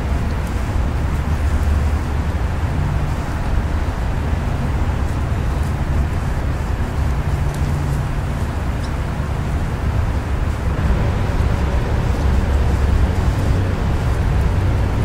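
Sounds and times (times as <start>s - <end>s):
low rumble: 0.0s - 15.0s
faint hum: 8.4s - 15.0s.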